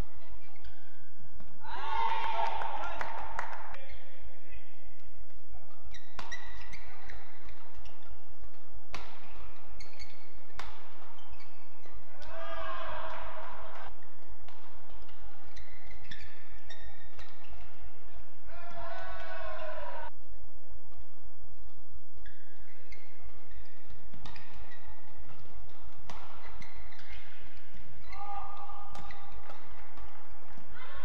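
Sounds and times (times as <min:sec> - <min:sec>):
shoes squeaking on court: 0:00.0 - 0:01.6, 0:05.0 - 0:12.3, 0:13.2 - 0:18.3, 0:21.6 - 0:30.7
rackets hitting shuttlecock: 0:04.9 - 0:31.0.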